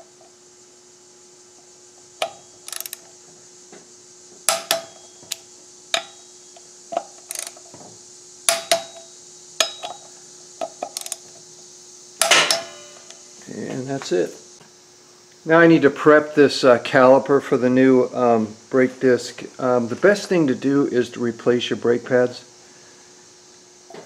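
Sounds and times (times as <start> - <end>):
torque wrench clicking and ratcheting: 2.6 - 3.0, 7.2 - 7.6, 10.8 - 11.2.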